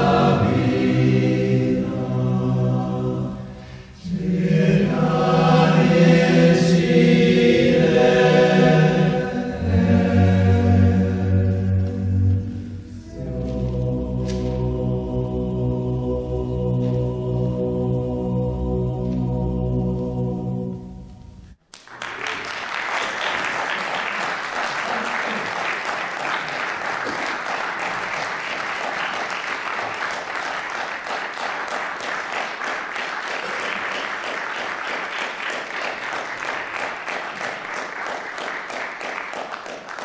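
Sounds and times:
audience applauding: 21.7 - 40.0.

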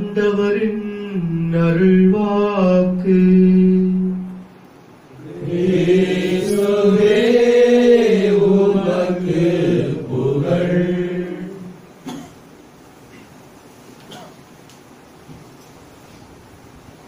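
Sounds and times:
chanted sung response: 0.0 - 12.0.

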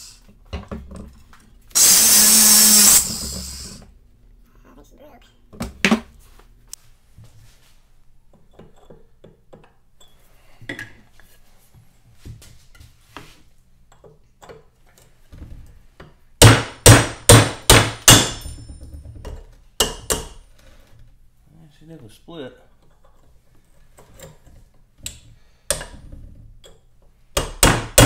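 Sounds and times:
hammer striking chisel on metal: 16.4 - 18.6, 19.8 - 20.4, 27.4 - 28.0.

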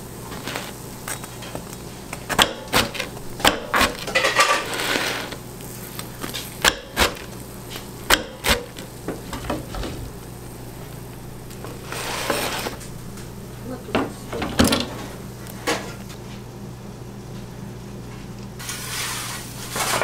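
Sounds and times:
knife cutting crispy pizza crust: 0.3 - 8.9.

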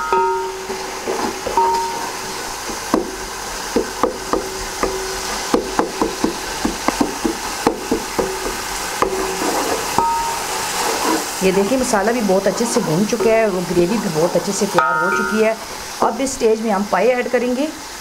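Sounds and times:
wooden spoon knocking metal pot: 0.0 - 10.5, 14.8 - 15.6
masala sizzling in ghee: 0.0 - 18.0.

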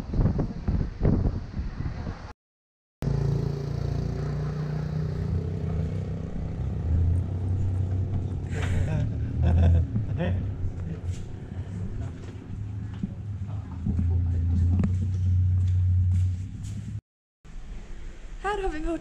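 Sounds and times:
rushing wind: 0.0 - 2.3
vehicle engine running: 3.0 - 17.0
boat noise: 5.8 - 16.9.

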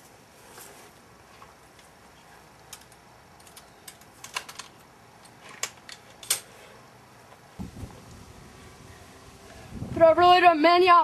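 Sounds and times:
low thud: 7.6 - 8.0.

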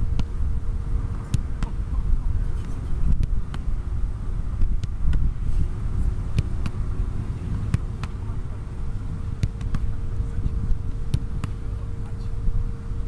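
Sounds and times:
soccer ball kicked and caught: 0.0 - 3.8, 4.6 - 5.4, 6.2 - 8.6, 9.2 - 12.1
faint steady hum: 0.0 - 13.0
wind rumbling on microphone: 0.0 - 13.0.

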